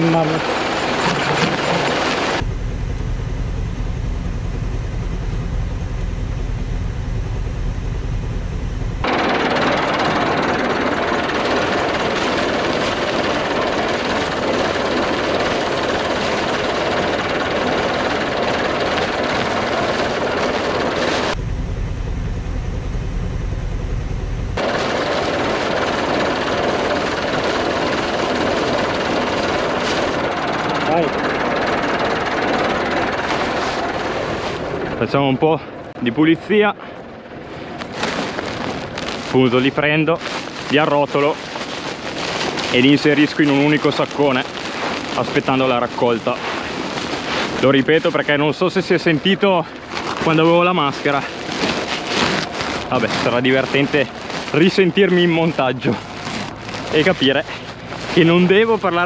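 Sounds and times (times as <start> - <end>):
tractor engine droning: 0.0 - 59.0
plastic liner rustling: 0.8 - 2.4, 37.6 - 48.3, 49.2 - 59.0
fertilizer pouring into hopper: 9.0 - 21.4, 24.6 - 34.6.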